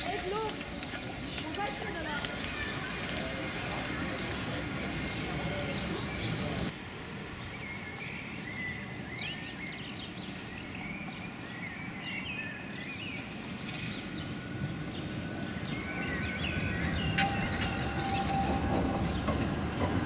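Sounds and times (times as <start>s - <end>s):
small birds chirping: 0.0s - 6.7s, 7.4s - 19.8s
tram rumbling on tracks: 0.0s - 6.7s, 13.3s - 20.0s.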